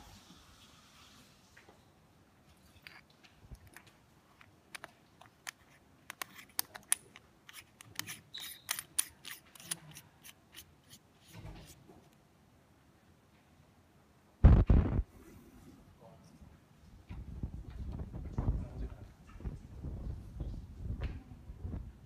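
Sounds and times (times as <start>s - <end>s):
plastic lens clicks: 2.8s - 10.7s.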